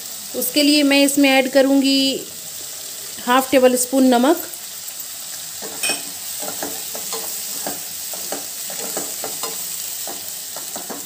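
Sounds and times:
vegetables sizzling in oil: 0:00.0 - 0:11.0
wooden spatula scraping wok: 0:04.9 - 0:11.0.

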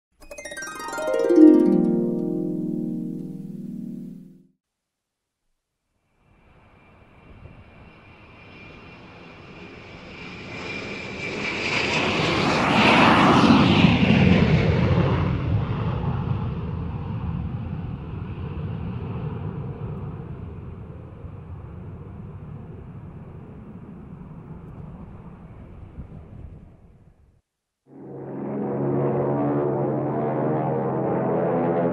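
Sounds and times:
jet airliner engines passing: 0:06.5 - 0:26.0, 0:27.9 - 0:31.9.

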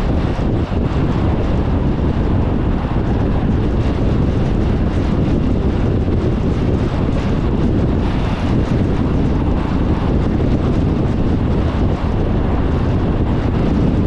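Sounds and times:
tyre and wind noise: 0:00.0 - 0:14.0
wind buffeting microphone: 0:00.0 - 0:14.0.

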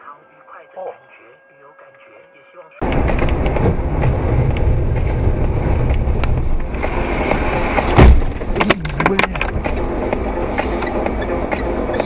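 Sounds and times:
loud thump: 0:02.8 - 0:09.7
road and engine noise inside car: 0:02.8 - 0:12.0
sharp knocks: 0:05.8 - 0:09.8.

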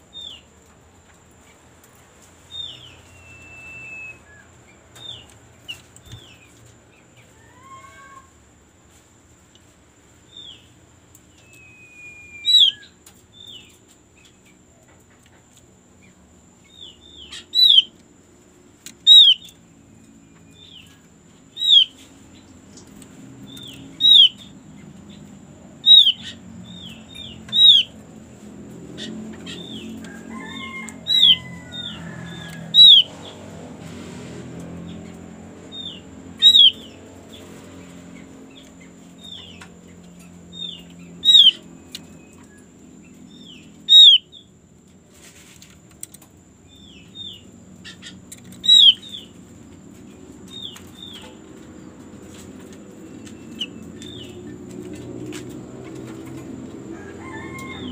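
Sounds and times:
songbird sharp chirps: 0:11.3 - 0:13.8, 0:16.6 - 0:18.0, 0:19.0 - 0:25.2, 0:25.8 - 0:28.0, 0:32.8 - 0:33.1, 0:35.7 - 0:37.0, 0:40.5 - 0:44.5, 0:46.7 - 0:49.4.

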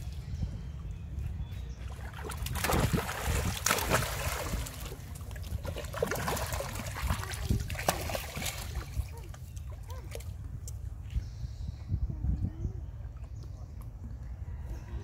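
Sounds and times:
water splashing and sloshing: 0:00.0 - 0:11.1.

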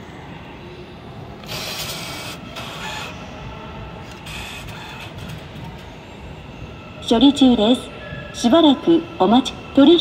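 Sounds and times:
bill acceptor whirring: 0:04.0 - 0:05.6.

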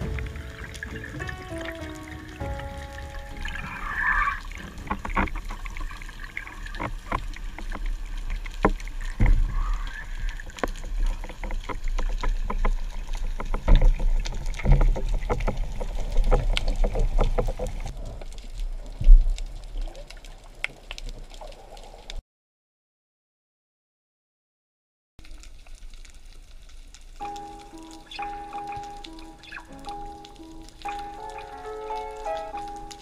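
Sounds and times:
underwater rumble of moving water: 0:00.0 - 0:22.2.

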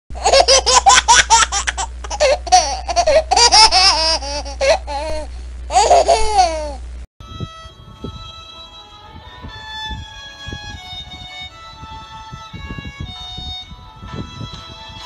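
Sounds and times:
low steady hum: 0:00.1 - 0:15.0
high-pitched laughter: 0:00.2 - 0:05.1, 0:05.7 - 0:06.8.

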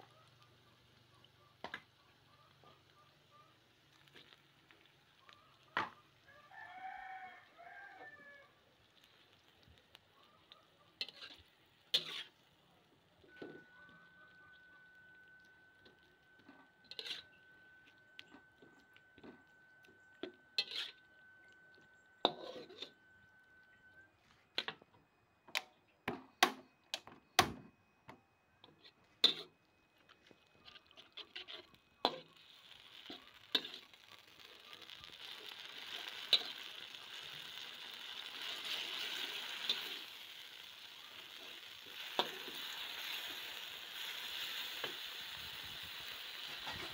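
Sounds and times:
frying sizzle: 0:00.0 - 0:21.6, 0:22.2 - 0:22.9, 0:28.6 - 0:46.9
metal spatula scraping a wok: 0:11.0 - 0:12.5, 0:16.4 - 0:17.4, 0:20.2 - 0:21.1, 0:22.2 - 0:23.0, 0:28.6 - 0:29.6, 0:30.6 - 0:46.9
faint steady whine: 0:12.6 - 0:26.1.

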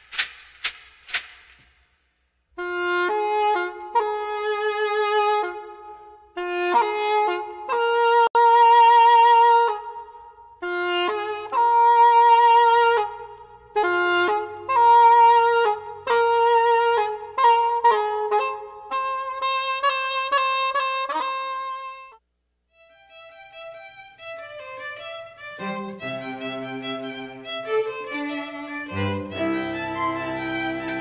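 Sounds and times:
slow solo wind instrument melody: 0:02.6 - 0:31.0
faint low accompanying notes: 0:22.7 - 0:31.0.

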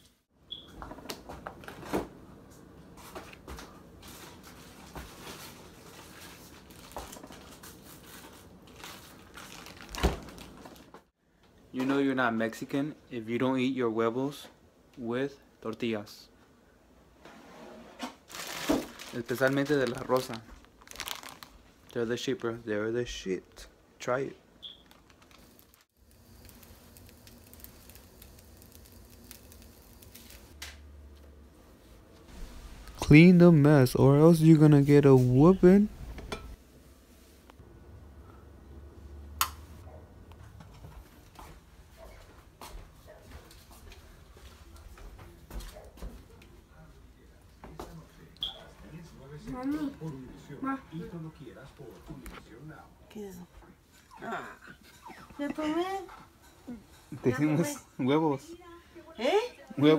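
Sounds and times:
plastic bags and foil crinkling: 0:04.1 - 0:11.0, 0:18.2 - 0:22.6, 0:24.6 - 0:30.6
tortilla crackling in frying pan: 0:24.6 - 0:30.6.

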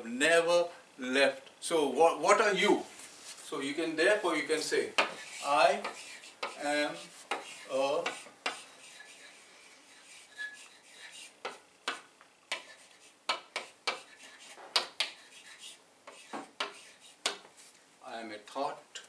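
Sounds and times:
chalk writing on blackboard: 0:05.0 - 0:17.7.

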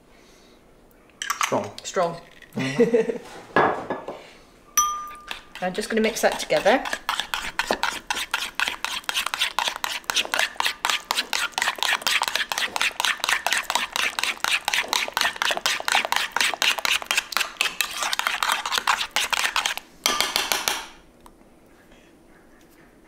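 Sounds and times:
metal spoon stirring in ceramic bowl: 0:04.8 - 0:20.4.

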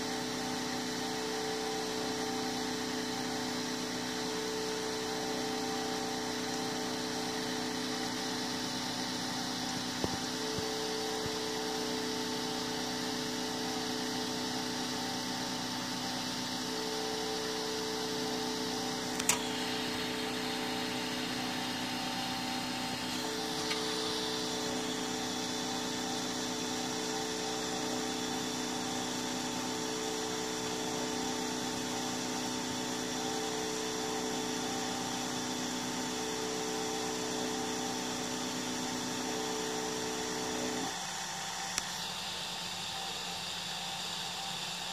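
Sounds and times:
mid-pitched machine tone: 0:00.0 - 0:44.9
three d printer hum: 0:00.0 - 0:44.9
sharp click: 0:19.1 - 0:19.6.

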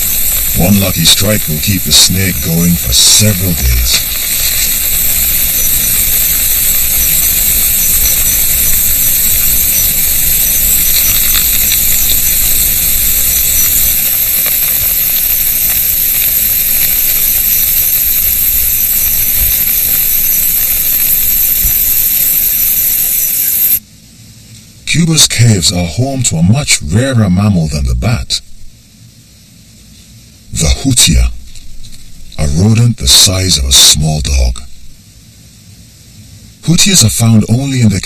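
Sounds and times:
swarm of bats flying: 0:00.0 - 0:23.8.

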